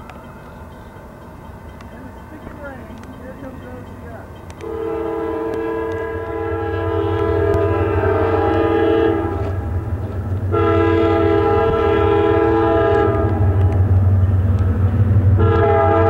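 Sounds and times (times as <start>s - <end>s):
train low rumble: 0.0s - 16.0s
locomotive air horn blasts: 4.6s - 9.8s, 10.5s - 13.6s, 15.3s - 16.0s.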